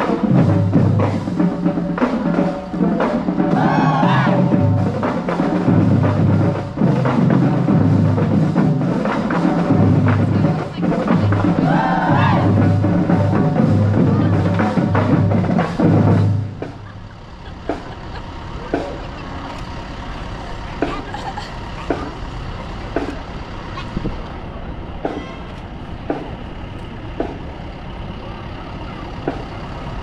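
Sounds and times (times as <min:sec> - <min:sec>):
bass drums: 0:00.0 - 0:19.4
marching band playing: 0:00.0 - 0:30.0.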